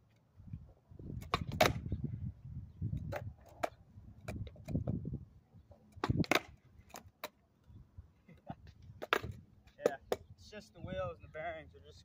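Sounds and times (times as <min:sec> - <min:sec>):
skateboard wheels rolling on concrete: 0:00.0 - 0:10.7
skateboard clacking on ground: 0:01.2 - 0:01.9, 0:03.0 - 0:05.0, 0:05.7 - 0:07.4, 0:08.9 - 0:10.3.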